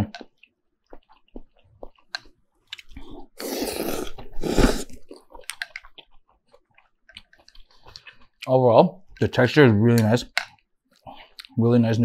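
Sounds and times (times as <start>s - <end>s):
chewing and mouth clicks: 0.1s - 9.3s, 10.3s - 11.6s
slurping noodles: 2.8s - 5.4s.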